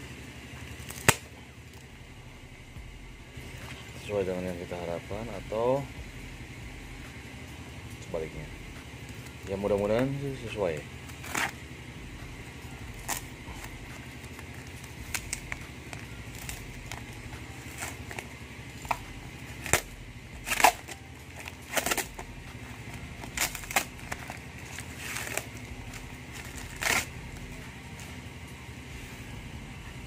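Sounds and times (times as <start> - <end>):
faint low hum: 0.0 - 30.0
packing tape peeling: 0.8 - 1.3, 11.0 - 11.6, 12.9 - 28.1
cardboard parcel crackling and rustling: 13.0 - 28.2.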